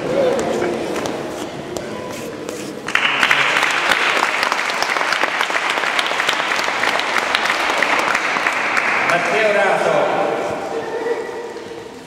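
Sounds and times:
audience clapping: 0:02.9 - 0:09.7.

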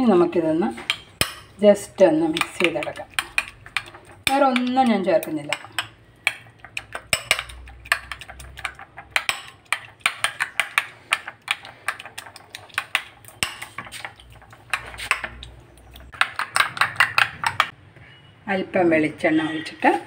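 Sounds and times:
egg mix sloshing: 0:00.4 - 0:17.7
spoon clinking against ceramic bowl: 0:02.4 - 0:17.7.

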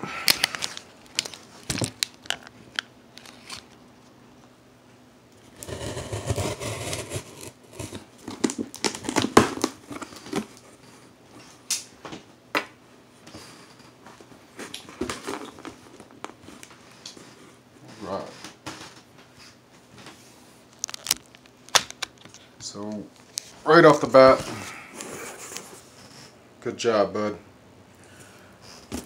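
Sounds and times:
cardboard box tape tearing: 0:05.5 - 0:10.6.

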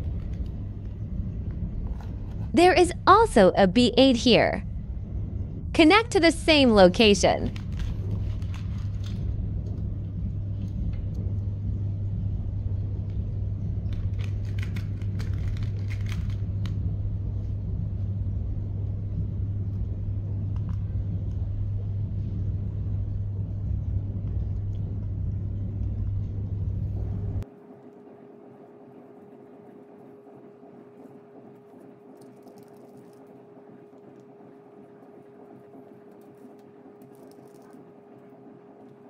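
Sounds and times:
low hum and rumble: 0:00.0 - 0:39.0.

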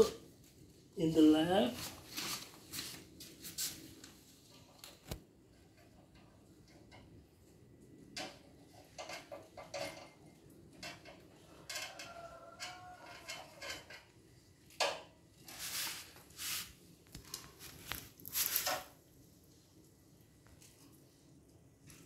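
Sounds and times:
small metal clinks and scrapes: 0:08.1 - 0:16.1.

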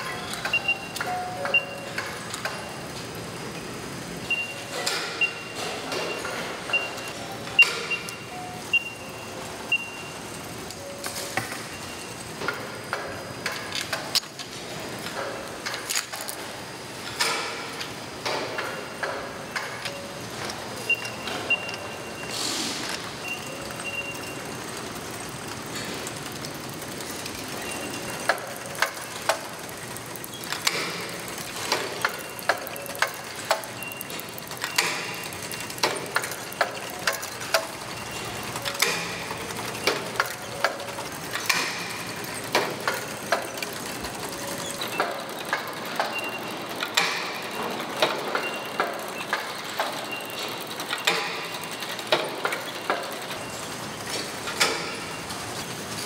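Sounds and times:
conveyor machine noise: 0:00.0 - 0:56.0
plastic hangers clacking on rail: 0:22.9 - 0:55.1.

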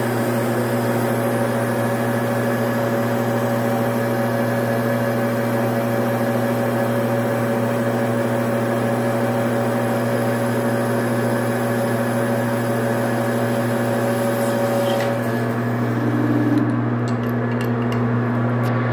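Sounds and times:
metal lathe motor hum: 0:00.0 - 0:18.9
hiss of cutting tool: 0:13.2 - 0:15.7.

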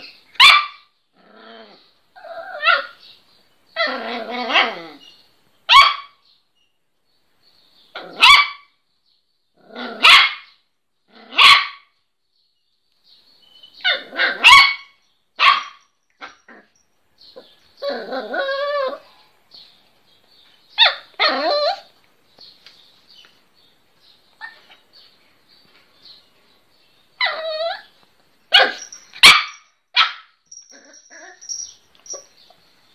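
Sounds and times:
puppy barking: 0:00.4 - 0:00.9, 0:05.7 - 0:06.2, 0:08.0 - 0:08.7, 0:09.9 - 0:10.6, 0:11.3 - 0:11.9, 0:13.8 - 0:16.4, 0:28.5 - 0:32.3.

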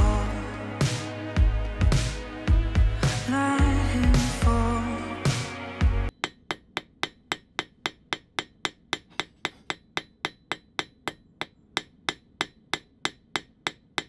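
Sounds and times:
hammer striking metal on anvil: 0:06.1 - 0:14.0.

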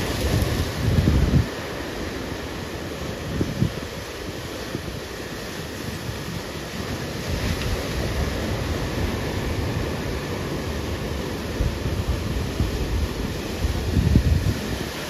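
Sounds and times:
wind buffeting microphone: 0:00.0 - 0:01.7, 0:07.2 - 0:15.0
ocean surf breaking: 0:00.0 - 0:15.0.

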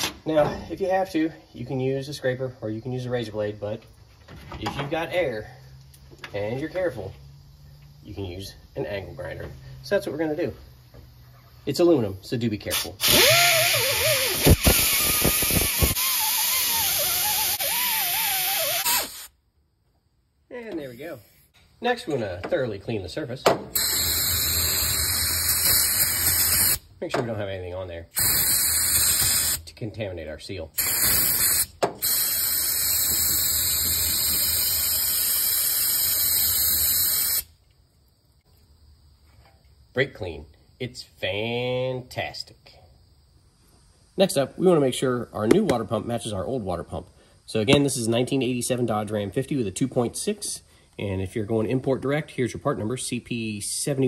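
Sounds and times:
pneumatic grinder whining: 0:12.7 - 0:19.3, 0:23.7 - 0:26.8
aerosol can spraying hiss: 0:14.1 - 0:19.0, 0:23.8 - 0:26.8, 0:28.2 - 0:29.6, 0:30.8 - 0:37.5.

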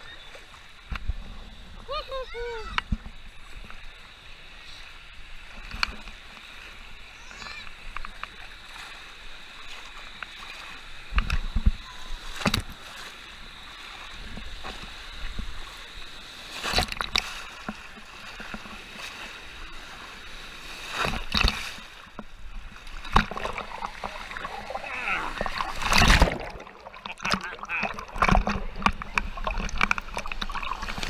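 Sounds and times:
waves splashing over camera: 0:00.0 - 0:31.0
water sloshing: 0:20.7 - 0:31.0.

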